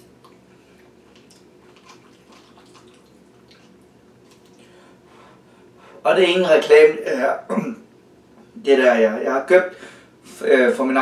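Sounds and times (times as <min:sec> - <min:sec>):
chewing: 0:00.2 - 0:04.7.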